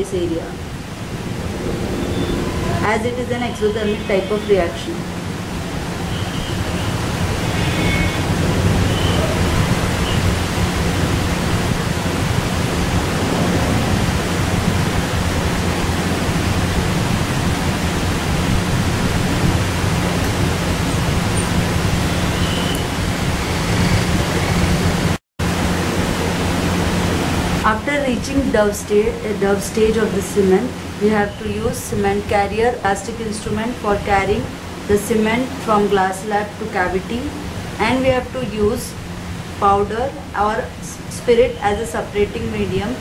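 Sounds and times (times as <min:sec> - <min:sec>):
steady loud hiss: 0:00.0 - 0:43.0
low hum: 0:10.4 - 0:21.6.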